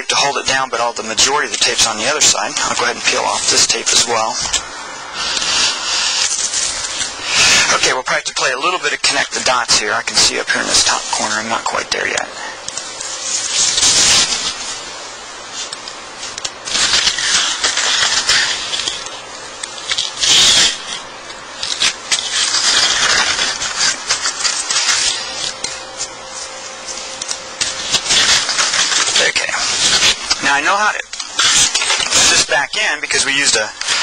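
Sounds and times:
knife blade scratching wood veneer: 0:21.6 - 0:25.8.

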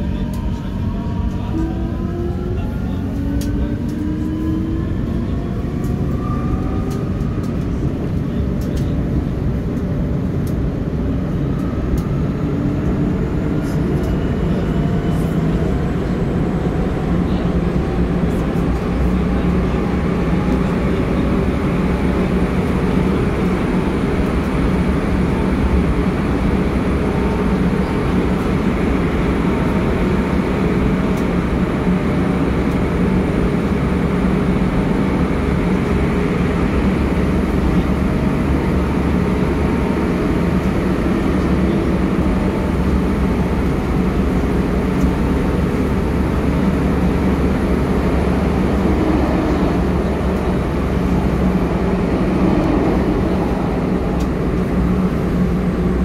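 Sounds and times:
metro train running: 0:00.0 - 0:56.0.

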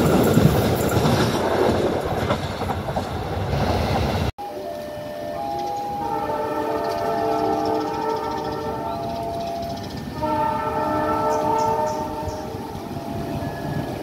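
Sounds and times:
train horn blasts: 0:04.4 - 0:14.0.

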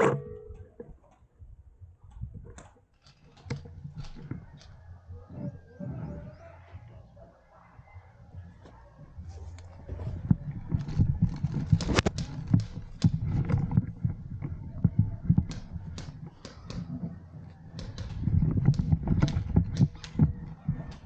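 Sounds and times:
sharp clicks and knocks: 0:09.6 - 0:21.0.

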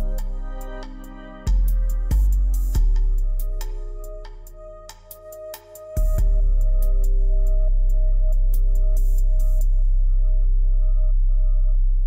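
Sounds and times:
ticking hi-hat: 0:00.0 - 0:09.8
deep bass notes: 0:00.0 - 0:12.0.

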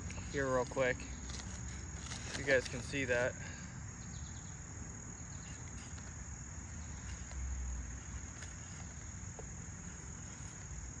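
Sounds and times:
insects chirring: 0:00.0 - 0:11.0.

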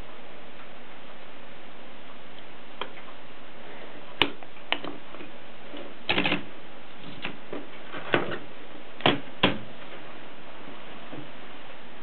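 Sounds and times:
typewriter mechanical clicks: 0:06.1 - 0:06.5.

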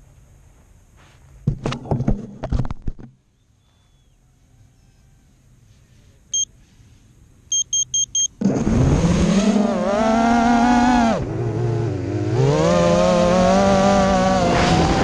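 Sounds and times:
electronic beeps: 0:07.5 - 0:08.4.

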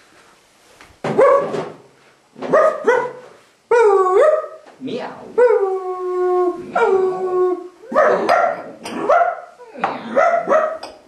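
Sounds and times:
dog yelping barks: 0:01.2 - 0:01.6, 0:02.5 - 0:04.6, 0:07.9 - 0:10.8
dog howling: 0:05.4 - 0:08.3.

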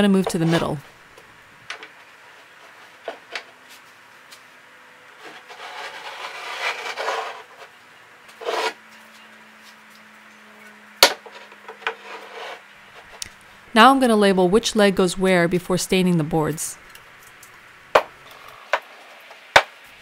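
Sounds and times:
metal pipes scraping on wood: 0:05.2 - 0:08.8, 0:11.2 - 0:13.2.

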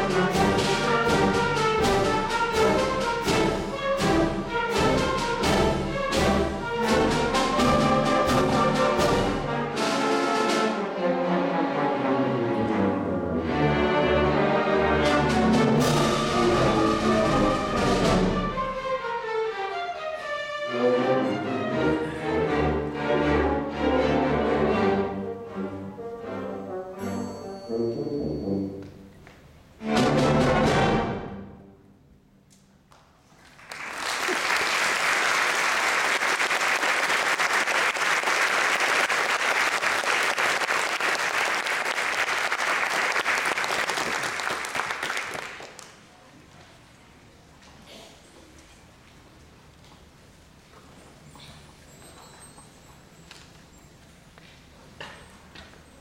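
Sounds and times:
orchestra playing: 0:00.0 - 0:32.1
audience applause: 0:33.4 - 0:46.1.

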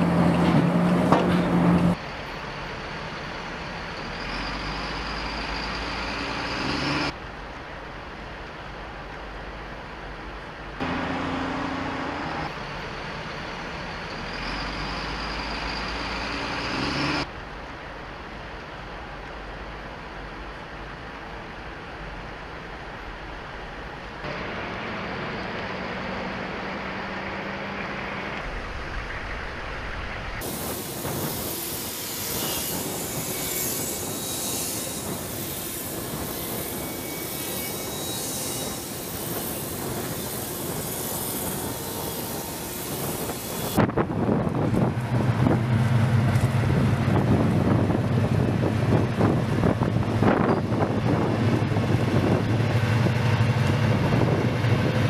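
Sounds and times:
clanking tracks: 0:00.0 - 0:02.3, 0:24.2 - 0:55.0
tracked vehicle engine drone: 0:00.0 - 0:08.5, 0:10.3 - 0:18.4, 0:24.1 - 0:37.0, 0:39.0 - 0:55.0
vehicle engines and tyres: 0:00.0 - 0:55.0.

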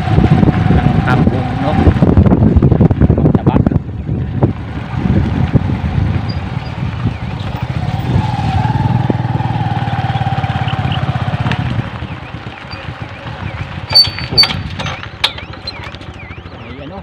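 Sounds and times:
small motorcycle engine putter: 0:13.9 - 0:16.3.

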